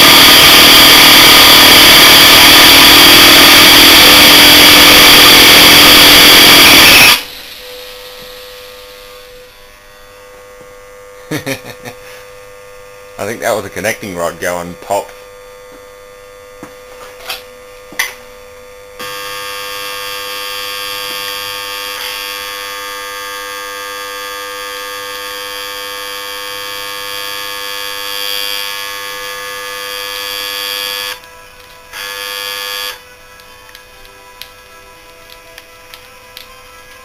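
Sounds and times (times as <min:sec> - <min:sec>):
electric motor buzzing loudly: 0:00.0 - 0:13.2, 0:15.4 - 0:37.0.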